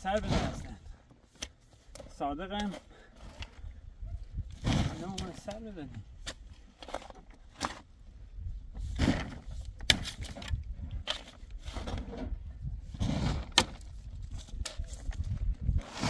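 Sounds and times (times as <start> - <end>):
short scraping noises: 11.1 - 13.8, 15.7 - 16.0.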